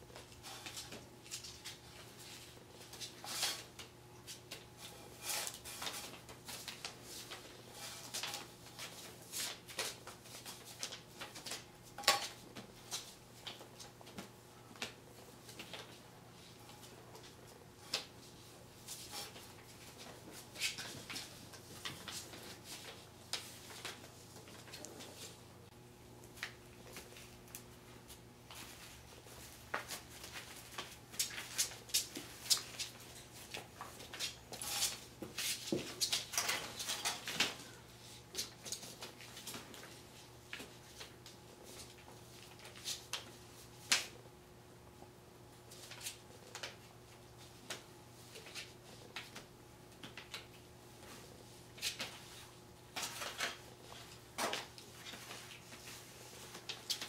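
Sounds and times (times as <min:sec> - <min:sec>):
puppies scuffling on hard floor: 0:26.3 - 0:43.4.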